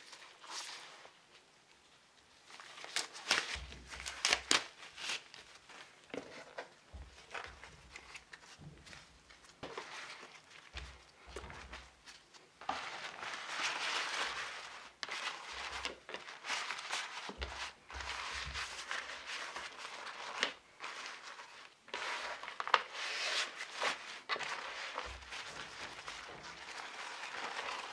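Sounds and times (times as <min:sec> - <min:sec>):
parchment paper crinkling: 0:02.4 - 0:27.9.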